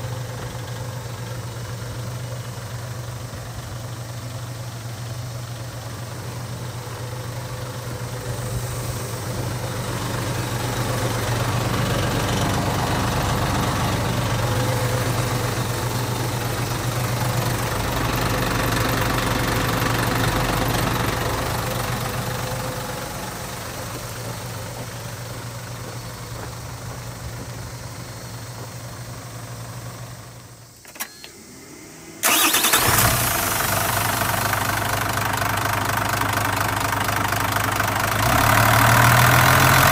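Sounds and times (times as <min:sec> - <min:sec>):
diesel engine idling: 0:00.0 - 0:30.8, 0:31.4 - 0:39.9
single click: 0:30.8 - 0:31.4.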